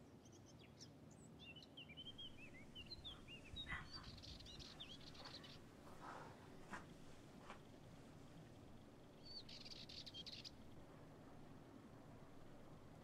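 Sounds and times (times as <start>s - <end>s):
small birds chirping: 0.0s - 7.0s, 7.6s - 10.9s
soft rustling: 4.8s - 9.1s.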